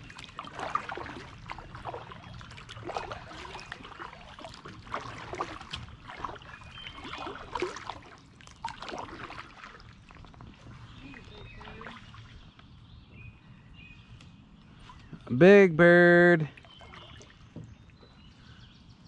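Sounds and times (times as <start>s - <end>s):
kayak paddle splashing: 0.0s - 12.6s, 16.5s - 18.5s
water dripping off paddle: 0.0s - 12.7s.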